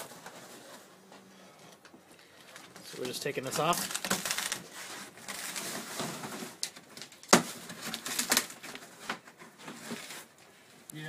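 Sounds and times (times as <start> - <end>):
canvas rustling and crackling: 2.6 - 6.7.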